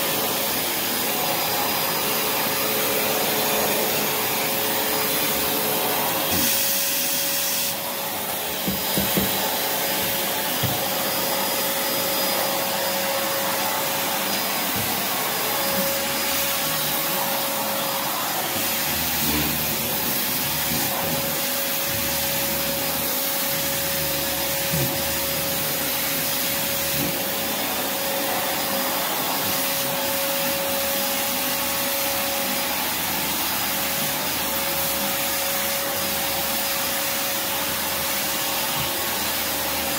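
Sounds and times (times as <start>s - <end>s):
vacuum cleaner whining: 0.0s - 39.9s
knocks: 8.6s - 9.4s.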